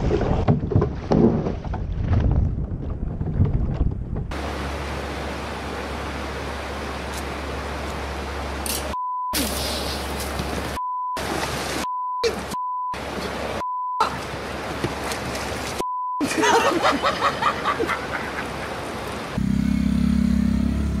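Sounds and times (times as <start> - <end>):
steady engine hum: 4.3 - 13.6, 14.3 - 21.0
running river water splashing: 4.3 - 19.4.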